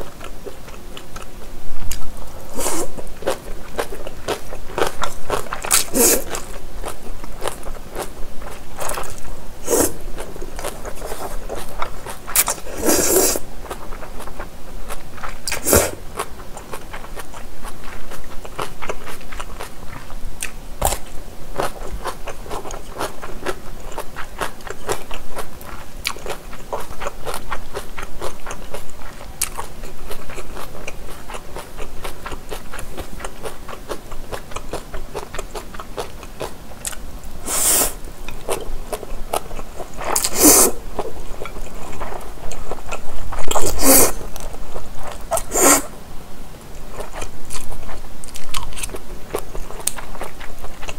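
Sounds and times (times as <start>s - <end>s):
slurping noodles: 2.5s - 3.0s, 5.8s - 6.6s, 8.8s - 13.5s, 15.5s - 16.0s, 37.4s - 38.0s, 40.0s - 40.8s, 43.4s - 44.2s, 45.3s - 45.9s.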